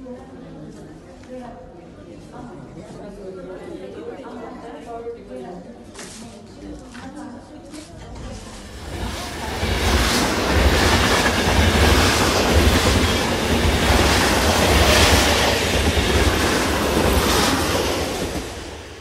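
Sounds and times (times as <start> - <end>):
train rumbling past: 8.2 - 19.0
train wheels clattering on rails: 8.5 - 19.0.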